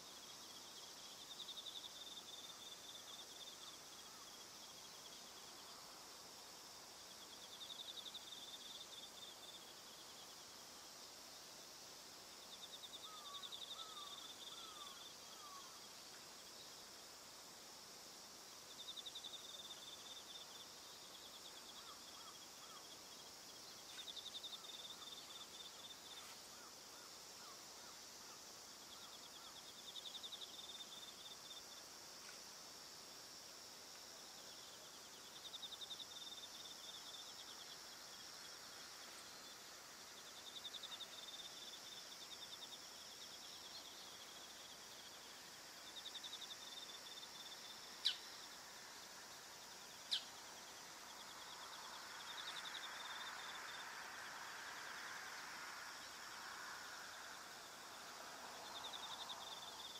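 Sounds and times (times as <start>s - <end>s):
crickets trilling: 0.0s - 59.9s
high insect hum: 0.0s - 59.9s
faint rushing noise: 47.2s - 59.9s.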